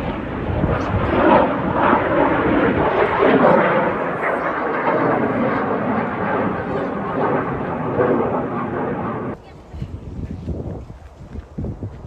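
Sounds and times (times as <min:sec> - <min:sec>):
jet aircraft passing overhead: 0:00.0 - 0:09.7
faint voices: 0:02.8 - 0:10.5.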